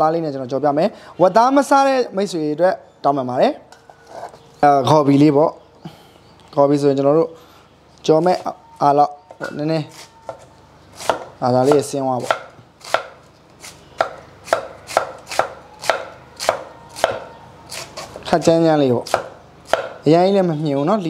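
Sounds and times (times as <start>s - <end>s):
cleaver chopping on wooden block: 11.0s - 13.2s, 14.0s - 17.3s, 19.1s - 20.0s.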